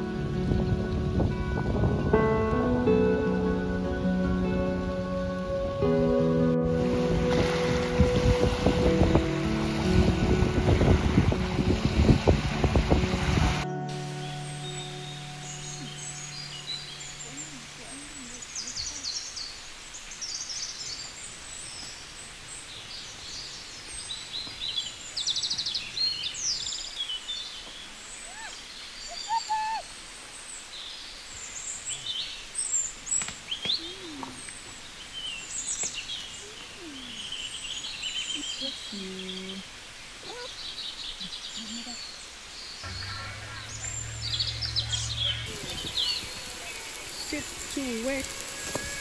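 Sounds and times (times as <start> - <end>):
outdoor background noise: 0.0 - 49.0
small birds singing: 13.6 - 49.0
low steady hum: 42.8 - 48.5.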